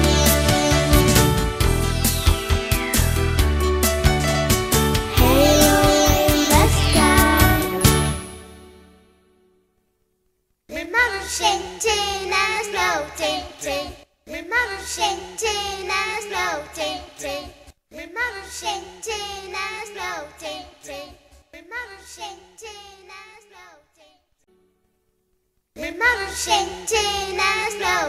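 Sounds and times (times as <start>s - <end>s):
person singing: 0.0s - 1.4s, 5.1s - 8.4s
steady bass line: 0.0s - 8.2s.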